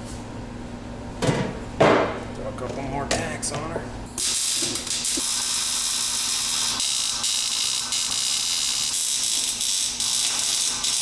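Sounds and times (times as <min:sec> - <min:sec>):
welding arc crackling: 0:04.2 - 0:11.0.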